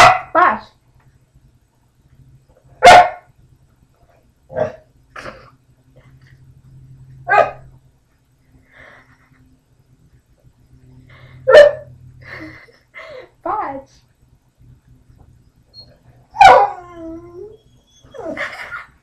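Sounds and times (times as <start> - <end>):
dog barking: 0.0 - 0.4, 2.8 - 3.3, 7.3 - 7.6, 11.5 - 11.9, 16.4 - 16.7
faint low hum: 0.0 - 19.0.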